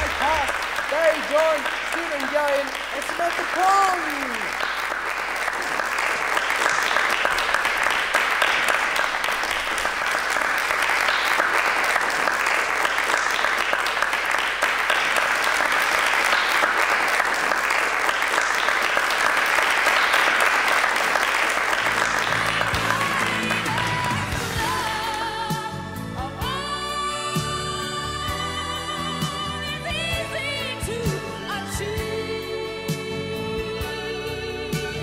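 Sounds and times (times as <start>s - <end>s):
audience applauding: 0.0s - 25.3s.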